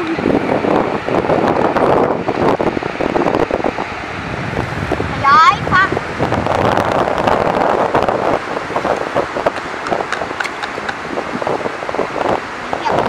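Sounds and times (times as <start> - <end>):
wind on microphone: 0.0 - 13.0
hands scraping wet sand: 8.7 - 11.0.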